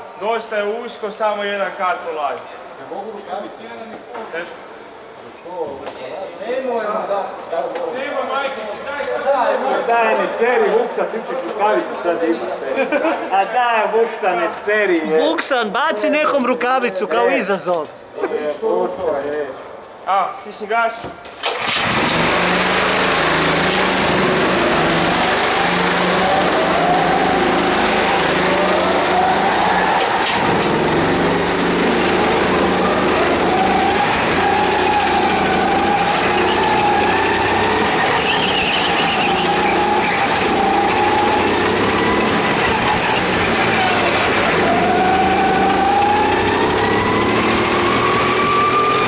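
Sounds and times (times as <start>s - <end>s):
go-kart engine revving: 21.4s - 49.0s.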